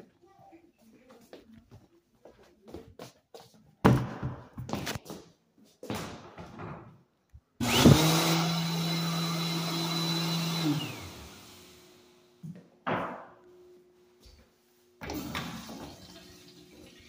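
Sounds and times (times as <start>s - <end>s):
hurried scuffing steps: 0.7s - 6.5s
hand dryer blowing: 7.6s - 11.9s.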